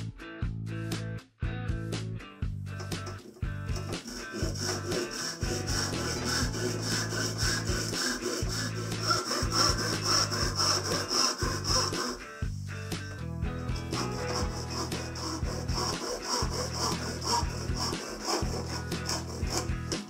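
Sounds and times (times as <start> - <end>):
handsaw cutting timber: 2.8 - 12.3, 13.8 - 20.0.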